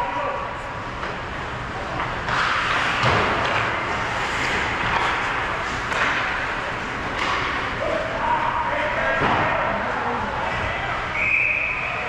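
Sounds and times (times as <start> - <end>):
hockey stick and puck clacks: 1.9 - 7.8
skates scraping on ice: 2.3 - 7.4.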